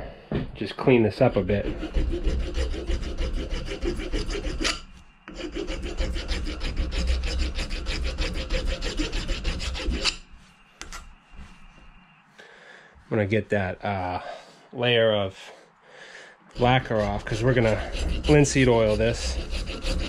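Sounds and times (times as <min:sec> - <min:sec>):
wood rasp scraping: 0:00.9 - 0:11.1, 0:16.6 - 0:20.0.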